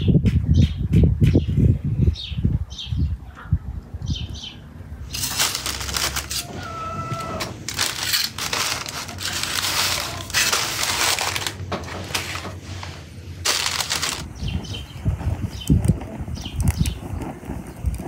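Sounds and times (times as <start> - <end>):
parchment paper crinkling: 5.1 - 14.5.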